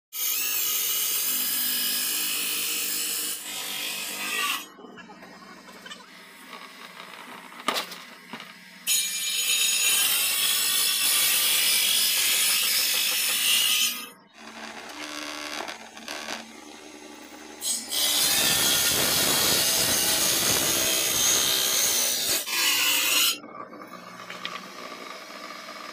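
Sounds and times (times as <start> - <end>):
table saw cutting wood: 0.2 - 4.9, 5.8 - 25.9
motor hum: 23.4 - 25.9.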